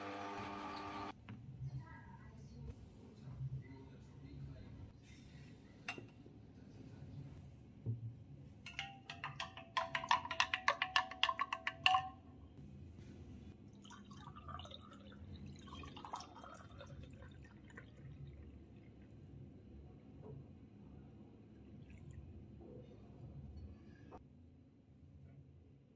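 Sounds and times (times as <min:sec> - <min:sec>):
spoon clinking in glass jug: 0:08.7 - 0:12.3
juice pouring into glass: 0:13.7 - 0:19.0.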